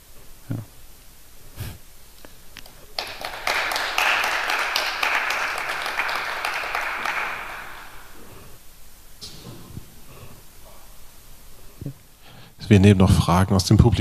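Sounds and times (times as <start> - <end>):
audience applauding: 2.9 - 8.2.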